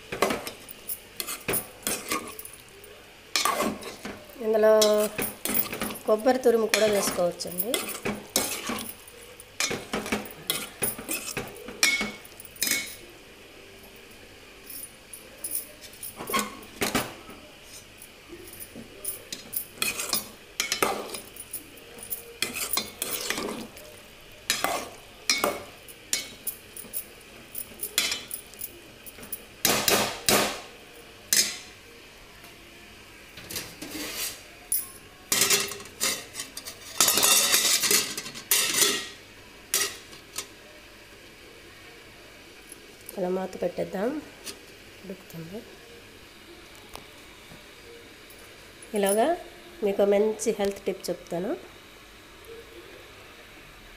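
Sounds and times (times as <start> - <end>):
ladle stirring in metal pot: 0.1 - 2.7, 3.3 - 13.0, 18.7 - 27.0, 33.6 - 34.4, 35.3 - 40.5.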